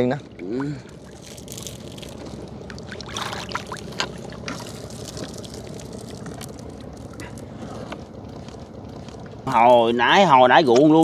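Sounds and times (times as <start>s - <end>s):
water splashing and trickling: 0.0s - 7.5s.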